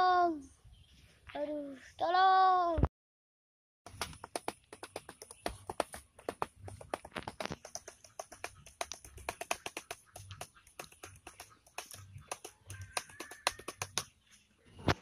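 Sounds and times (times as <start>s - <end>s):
laptop keyboard key clicks: 6.8s - 14.0s.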